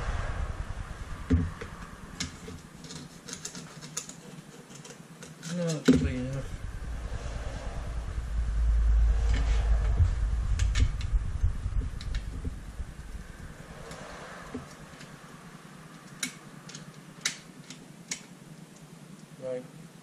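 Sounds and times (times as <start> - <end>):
low rumble: 0.0 - 3.0, 6.0 - 16.7.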